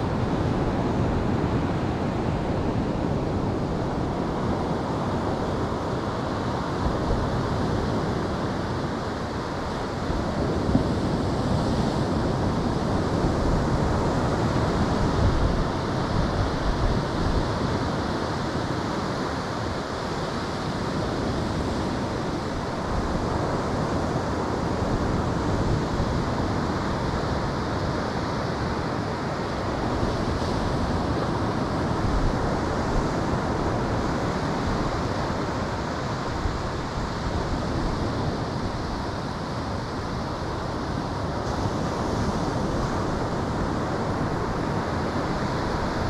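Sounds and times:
ocean surf rushing: 0.0s - 46.0s
wind on microphone: 0.0s - 46.0s.

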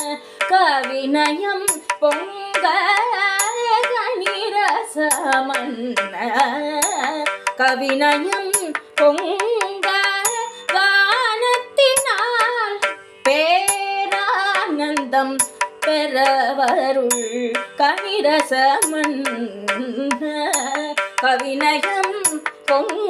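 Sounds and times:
drum strokes: 0.0s - 11.2s, 12.0s - 16.9s
ornamented melodic lead: 0.0s - 23.0s.

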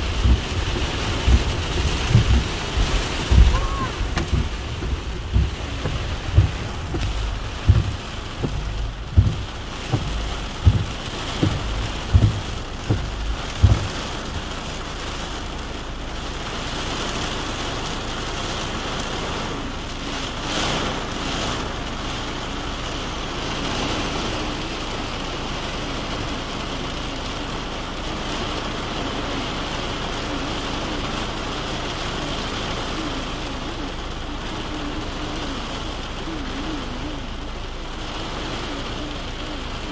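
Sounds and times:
low thumps: 0.0s - 15.6s
heavy rain on car roof: 0.0s - 39.9s.

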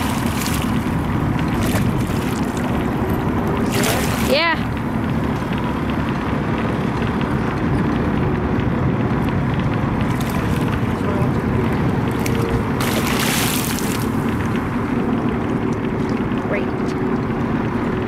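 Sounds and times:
fish splashing: 0.0s - 5.0s, 10.0s - 14.7s
boat engine rumble: 0.0s - 18.0s
wind buffeting microphone: 0.0s - 18.0s.

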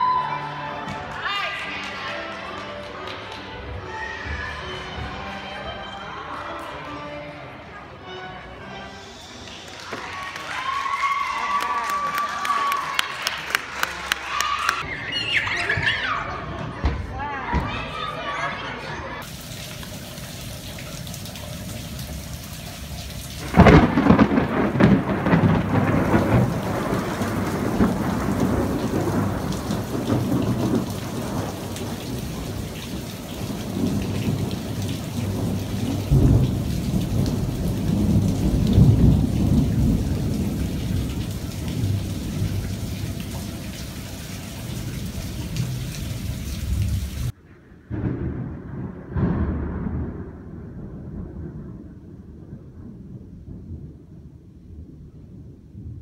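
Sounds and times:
steady rain: 9.1s - 14.8s, 19.2s - 56.0s
thunder rumbling: 19.2s - 56.0s.

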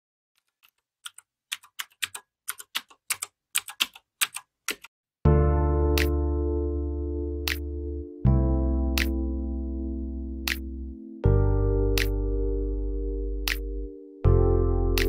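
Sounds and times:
keyboard typing clicks: 0.4s - 4.9s.

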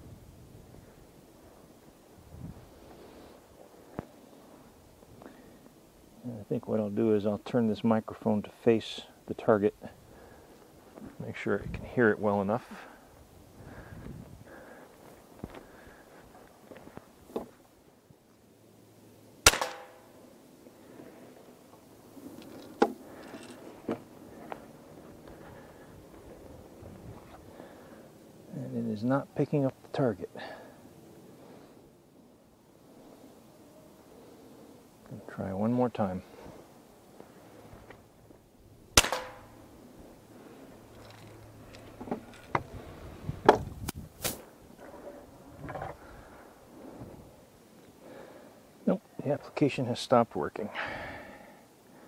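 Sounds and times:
air rifle shot: 19.4s - 20.1s, 39.0s - 39.5s.

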